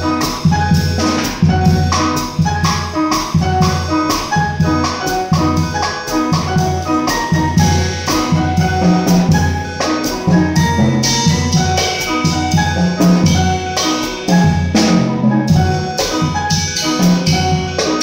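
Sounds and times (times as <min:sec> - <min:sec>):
drum kit with cymbals: 0:00.0 - 0:18.0
piano chords: 0:00.0 - 0:18.0
low bass notes: 0:04.4 - 0:18.0.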